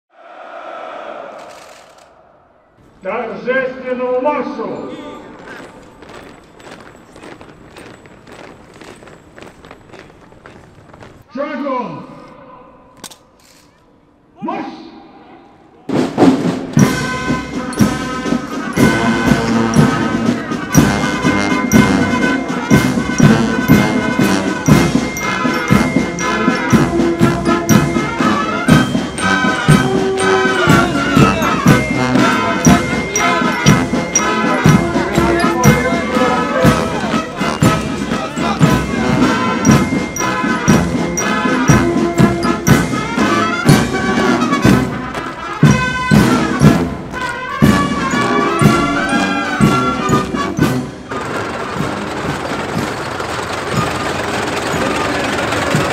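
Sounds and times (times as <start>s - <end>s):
brass band playing a march: 15.9s - 55.9s
drums beating: 15.9s - 55.9s.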